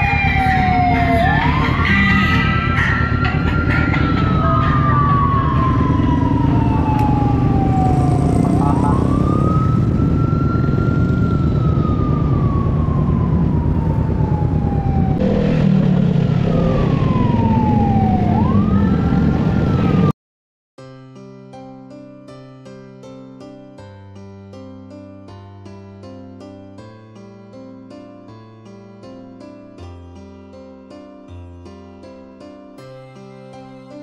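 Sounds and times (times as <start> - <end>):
motorcycle engines rumbling: 0.0 - 20.1
wailing siren: 0.0 - 20.2.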